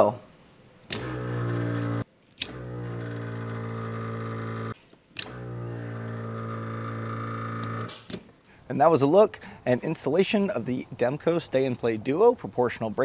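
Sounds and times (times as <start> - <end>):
electric air compressor humming: 0.9 - 8.1.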